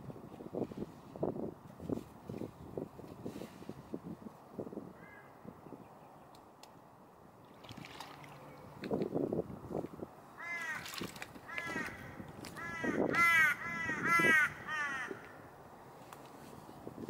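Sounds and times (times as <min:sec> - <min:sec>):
water splashing: 0:07.4 - 0:08.9, 0:10.5 - 0:11.9
bird harsh calls: 0:11.5 - 0:15.4.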